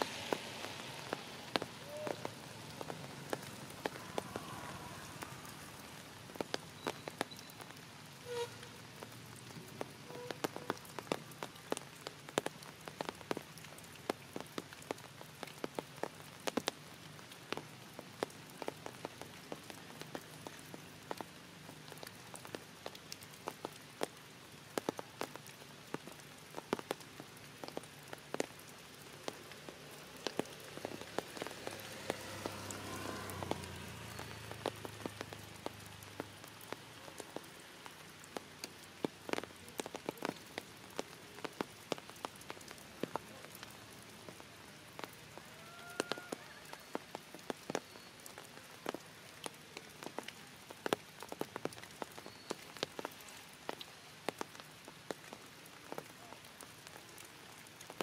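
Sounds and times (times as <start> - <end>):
rain falling: 0.0 - 58.0.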